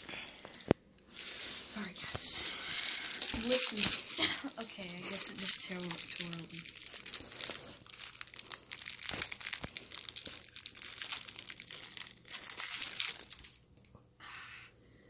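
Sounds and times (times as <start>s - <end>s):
plastic wrapper crinkling: 0.0s - 14.0s.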